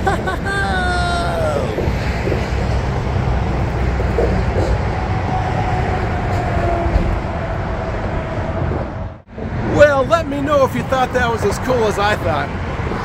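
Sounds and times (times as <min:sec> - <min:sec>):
freeway traffic passing: 0:00.0 - 0:13.0.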